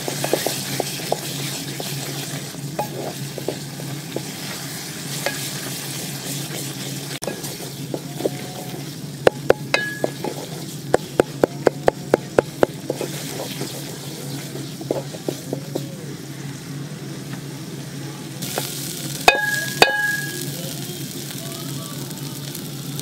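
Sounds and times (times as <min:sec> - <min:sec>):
frying sizzle: 0:00.0 - 0:23.0
pot ringing: 0:05.2 - 0:05.7, 0:07.2 - 0:13.0, 0:19.2 - 0:20.6
wooden spatula knocking on pot: 0:09.2 - 0:13.7.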